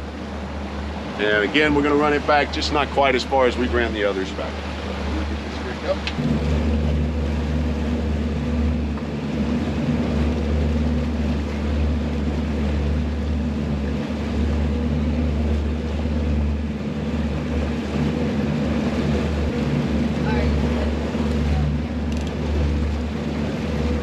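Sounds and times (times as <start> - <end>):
outboard motors droning: 0.0 - 24.0.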